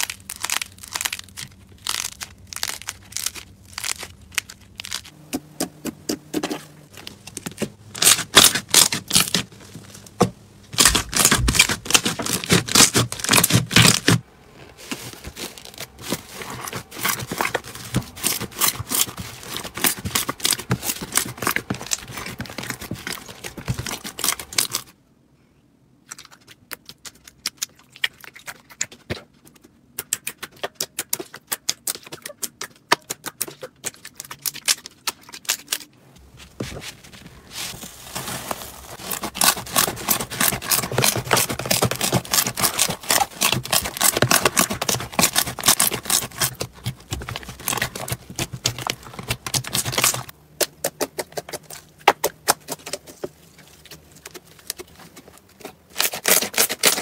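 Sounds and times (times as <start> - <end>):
slime crackling and popping: 0.0 - 5.2, 37.7 - 53.1.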